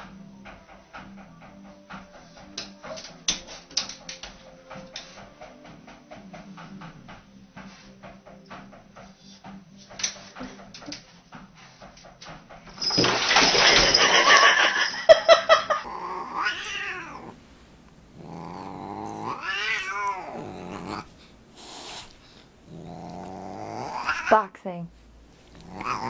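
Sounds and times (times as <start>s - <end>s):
cat yowling: 15.8s - 17.4s, 18.2s - 21.1s, 22.7s - 24.4s, 25.5s - 26.0s
cat hissing: 15.8s - 24.5s, 25.4s - 26.0s.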